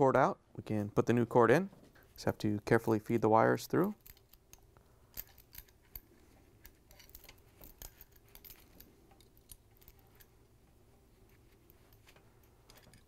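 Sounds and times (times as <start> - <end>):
small handling clicks: 3.0 - 13.0.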